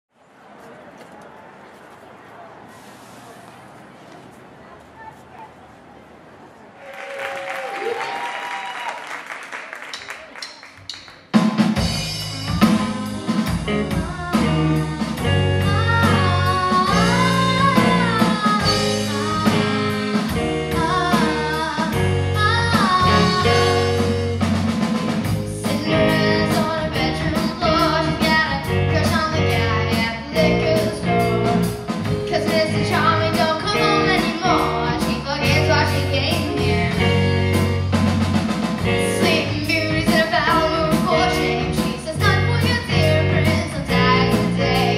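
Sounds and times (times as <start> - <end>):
live rock band playing: 10.3 - 44.9
girl singing lead vocal: 13.8 - 24.2, 25.4 - 37.2, 38.9 - 44.9.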